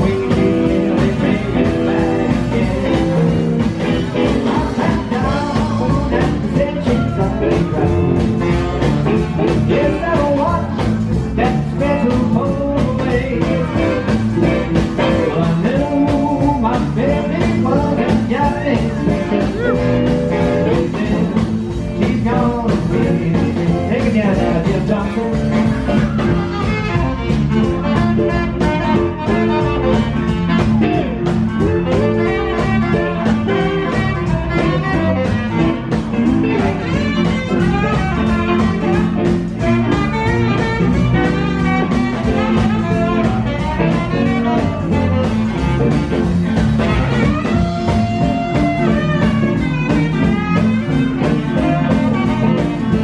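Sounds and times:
drums: 0:00.0 - 0:53.0
electric guitar: 0:00.0 - 0:53.0
keyboard piano: 0:00.0 - 0:53.0
upright bass: 0:00.0 - 0:53.0.

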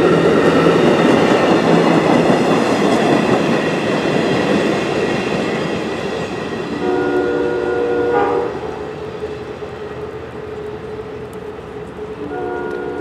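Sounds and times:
train wheels rumbling: 0:00.0 - 0:13.0
distant train air horn blast: 0:06.7 - 0:08.9, 0:12.2 - 0:13.0
faint steady horn tone: 0:06.8 - 0:08.7, 0:12.2 - 0:13.0.

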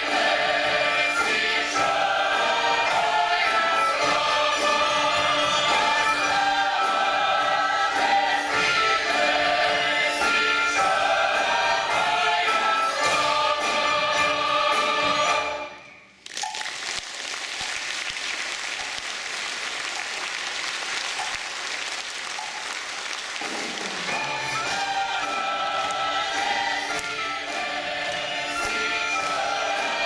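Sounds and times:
mixed choir singing: 0:00.0 - 0:15.8, 0:24.0 - 0:30.0.

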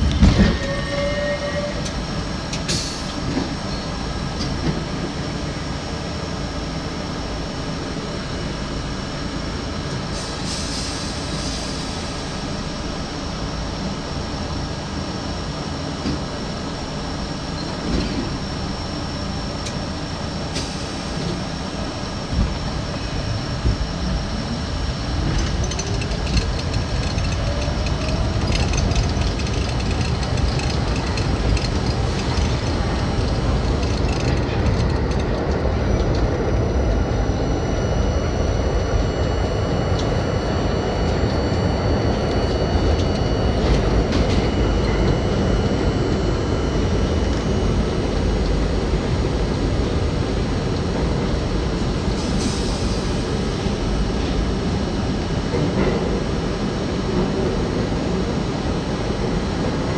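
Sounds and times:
train motor whine: 0:00.0 - 0:59.9
train rumbling through tunnel: 0:00.0 - 0:59.9
wheels clacking over rails: 0:25.2 - 0:36.3.

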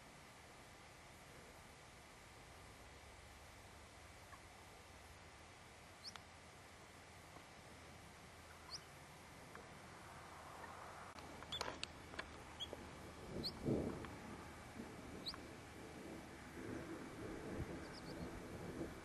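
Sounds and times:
faint wind hiss: 0:00.0 - 0:19.0
small animal squeaking: 0:08.6 - 0:08.9, 0:12.6 - 0:12.8, 0:17.9 - 0:18.2.

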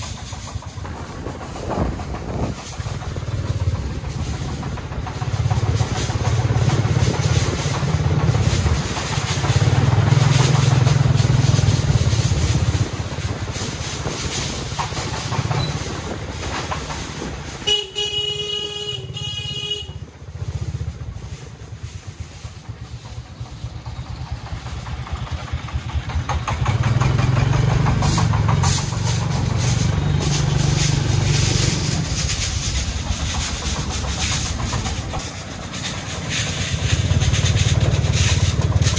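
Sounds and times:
truck engine chugging: 0:00.0 - 0:38.9
vehicle horn: 0:17.6 - 0:20.0.

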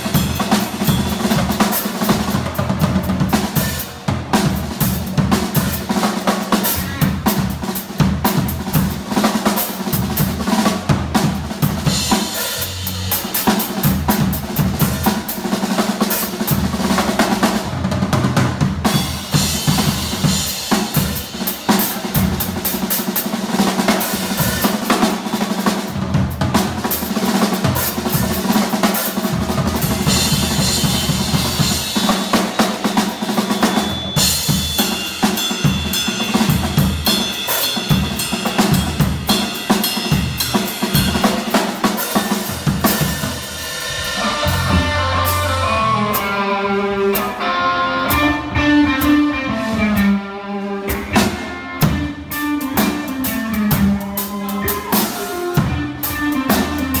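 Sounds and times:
drum solo: 0:00.0 - 0:57.0
ringing cymbals: 0:30.1 - 0:46.3.

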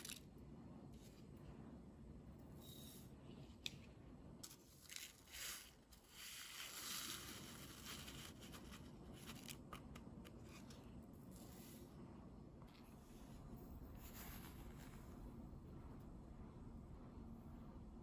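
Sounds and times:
coffee granules pouring: 0:04.4 - 0:09.7.

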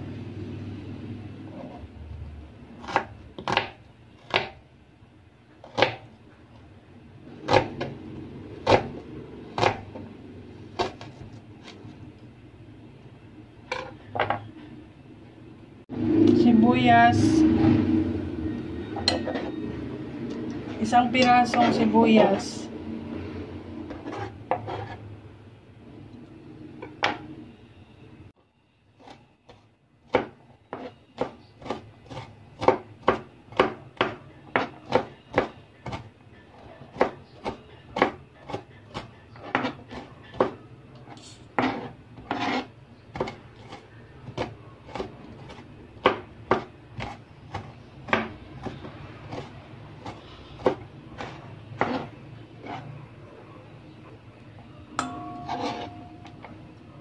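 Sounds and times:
knife chopping on cutting board: 0:02.8 - 0:04.6, 0:05.6 - 0:06.1, 0:07.4 - 0:08.0, 0:08.6 - 0:10.0, 0:30.1 - 0:36.0, 0:36.9 - 0:40.6, 0:41.6 - 0:52.8.

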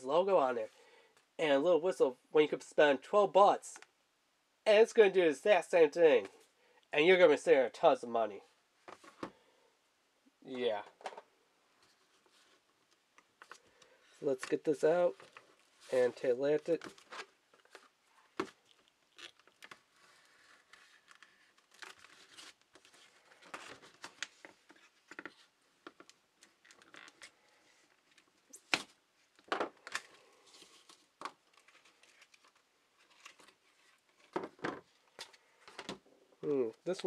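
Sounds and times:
plastic packaging crinkling and tearing: 0:16.6 - 0:24.6, 0:26.0 - 0:28.6, 0:29.8 - 0:34.3.

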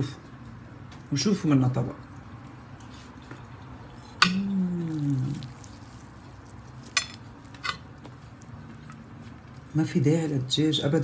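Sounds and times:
person humming low: 0:04.3 - 0:05.5.

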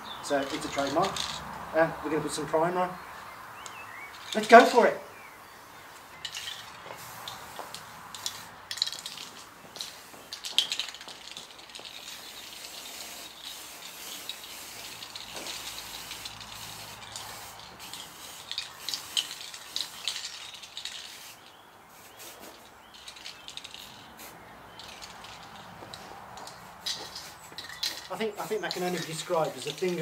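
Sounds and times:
spray can hissing: 0:06.2 - 0:30.0.

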